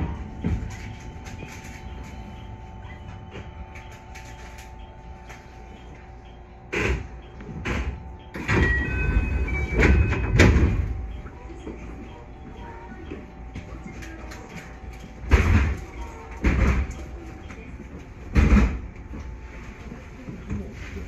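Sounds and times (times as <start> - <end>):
stopped train humming: 0.0 - 21.0
sliding train doors knocking: 6.8 - 11.1.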